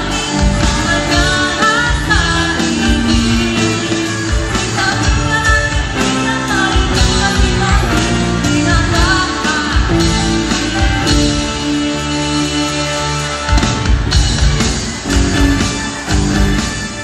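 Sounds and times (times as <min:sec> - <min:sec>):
woman singing into a microphone: 0:00.0 - 0:11.5
pop-rock band playing: 0:00.0 - 0:17.0.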